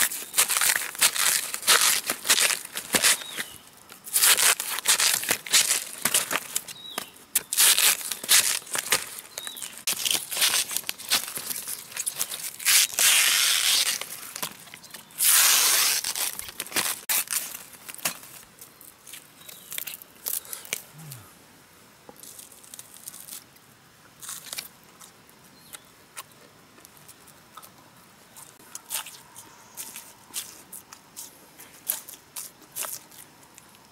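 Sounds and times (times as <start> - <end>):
bamboo sheaths tearing: 0.0 - 14.6, 15.2 - 18.5.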